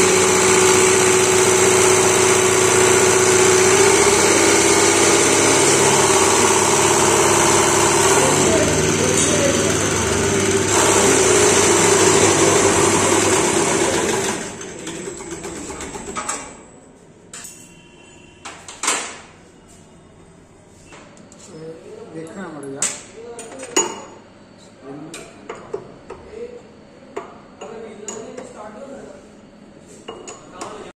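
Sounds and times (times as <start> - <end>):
injection pump running with hiss: 0.0 - 16.3.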